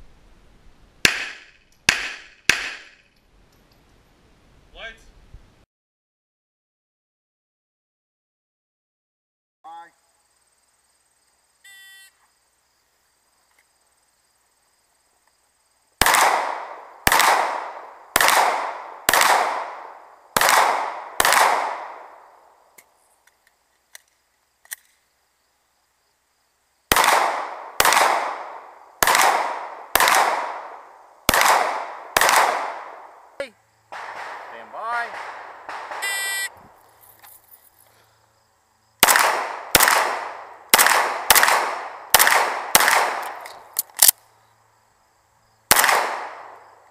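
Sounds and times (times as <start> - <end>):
handgun shots: 1.0 - 3.0, 16.0 - 19.8, 20.4 - 22.0, 26.9 - 30.7, 31.3 - 32.9, 33.9 - 36.4, 39.0 - 44.2, 45.7 - 46.5
short electronic beep: 11.7 - 12.1, 36.0 - 36.5.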